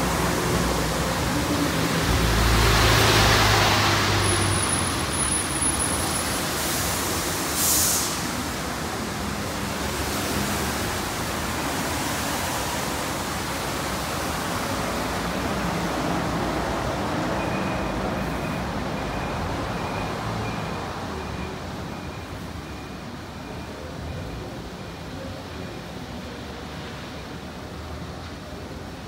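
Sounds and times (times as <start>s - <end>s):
road traffic: 0.0s - 29.0s
trams: 0.0s - 29.0s
faint high beep: 17.4s - 24.5s.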